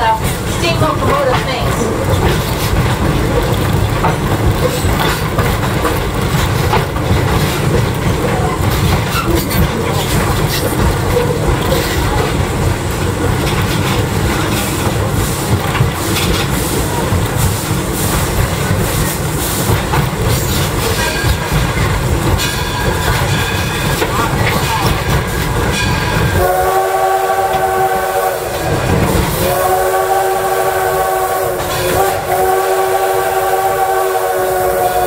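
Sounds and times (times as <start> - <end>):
wheels clicking over rail joints: 0.0 - 26.4
train rumbling: 0.0 - 35.0.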